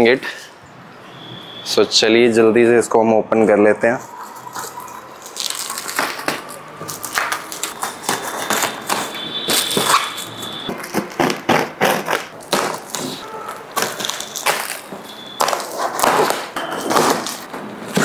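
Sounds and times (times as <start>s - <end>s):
plastic wrap crinkling: 4.0s - 18.0s
scissors snipping plastic wrap: 4.5s - 18.0s.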